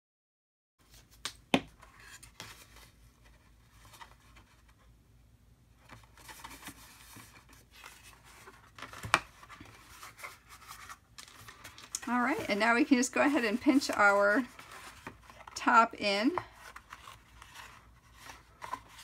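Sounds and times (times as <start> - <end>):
paper rustling and creasing: 5.8 - 19.0.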